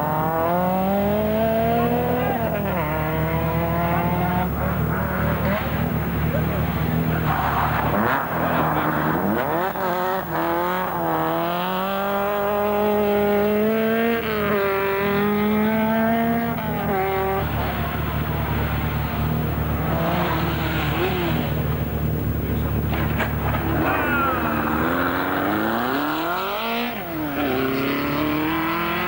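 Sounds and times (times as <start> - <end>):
rally car engine at full throttle: 0.0 - 29.0
rally car engine rumble approaching: 0.0 - 29.0.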